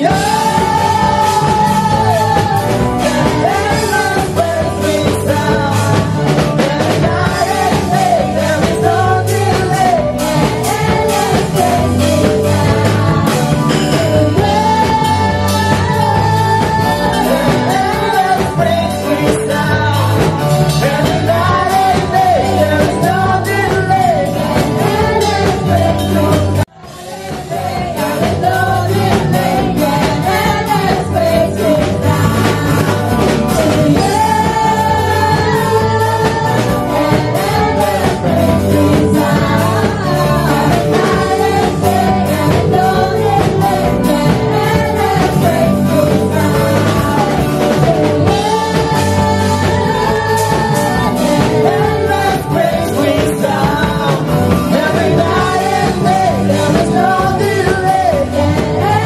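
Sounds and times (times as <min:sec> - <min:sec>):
person singing: 0:00.0 - 0:59.0
rock band playing: 0:00.0 - 0:59.0.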